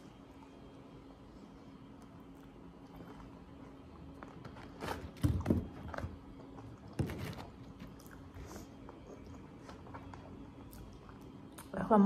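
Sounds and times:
faint steady hum: 0:00.0 - 0:12.0
person chewing: 0:06.4 - 0:11.7.

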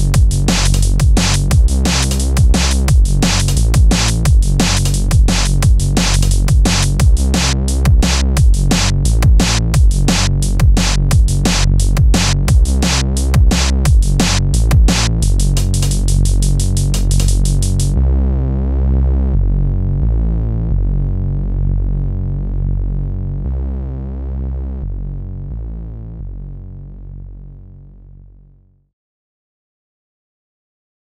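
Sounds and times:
drum machine beat with hi-hats: 0:00.0 - 0:18.0
held low synth chords: 0:00.0 - 0:28.5
low synth bass: 0:00.0 - 0:28.8.

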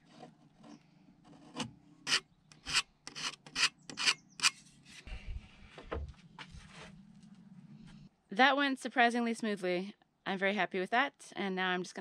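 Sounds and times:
knife blade scraping wood: 0:00.0 - 0:05.1.

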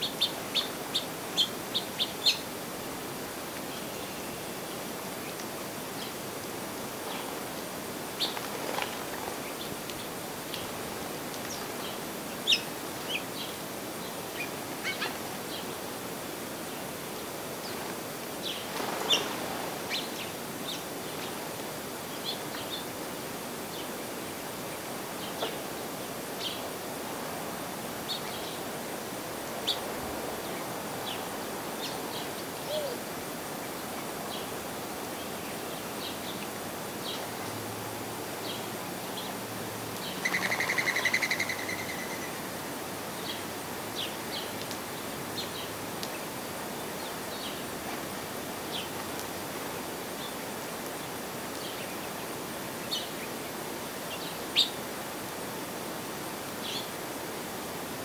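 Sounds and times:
outdoor hiss: 0:00.0 - 0:58.0
flutter of wings: 0:08.2 - 0:09.6, 0:18.4 - 0:20.2.

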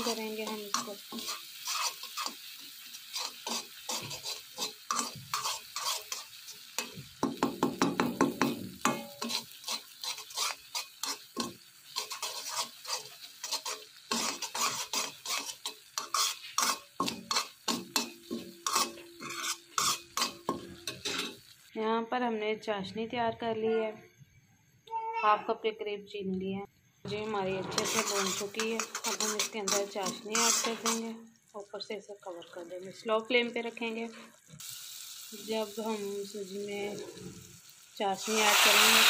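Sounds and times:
metal spoon scraping a pan: 0:00.0 - 0:21.5, 0:27.1 - 0:31.2, 0:38.2 - 0:39.0.

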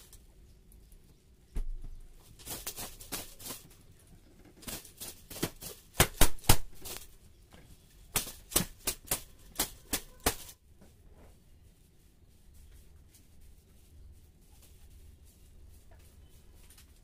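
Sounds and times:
broom swishing on fabric: 0:02.2 - 0:03.7, 0:08.2 - 0:17.0.

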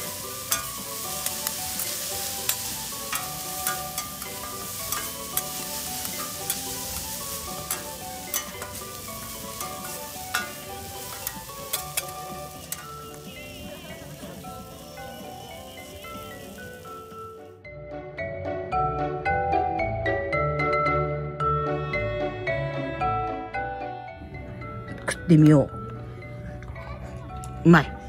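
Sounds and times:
noodles sizzling on griddle: 0:00.0 - 0:17.4
metal spatulas clacking and scraping: 0:00.4 - 0:13.0.

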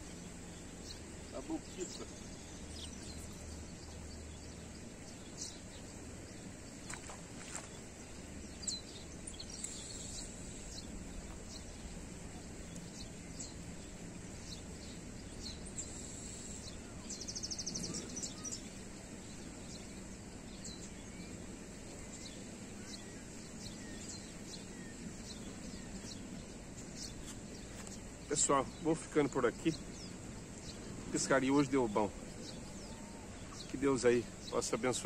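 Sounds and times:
low background noise: 0:00.0 - 0:35.0
bird chirps: 0:12.6 - 0:35.0.

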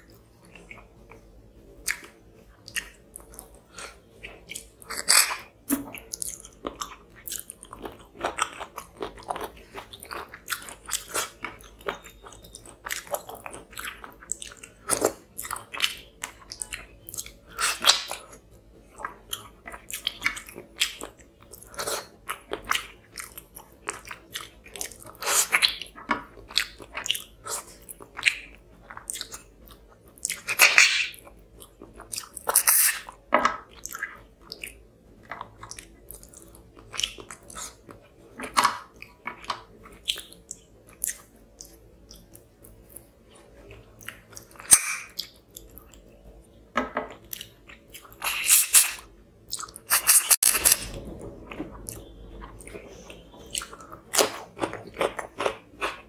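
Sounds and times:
person chewing and smacking: 0:00.0 - 0:56.0.

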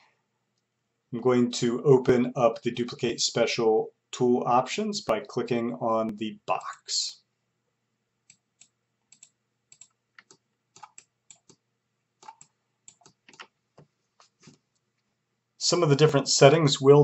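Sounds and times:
computer keyboard and mouse clicks: 0:08.3 - 0:11.6, 0:12.2 - 0:13.5.

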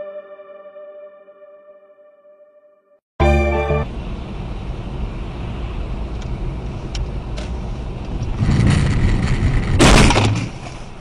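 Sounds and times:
car engine and road noise: 0:03.7 - 0:11.0.

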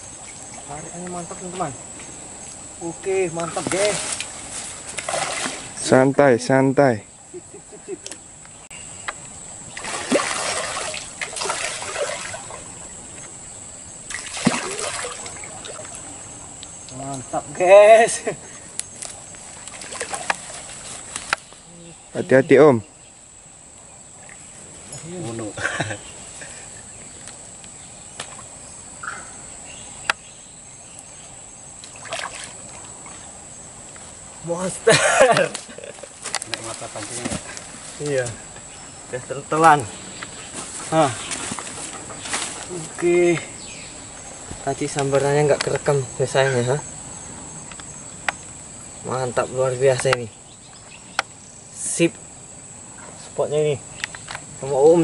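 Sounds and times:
fish splashing at water surface: 0:03.7 - 0:05.8, 0:09.8 - 0:12.7, 0:14.1 - 0:16.1, 0:31.9 - 0:33.2.

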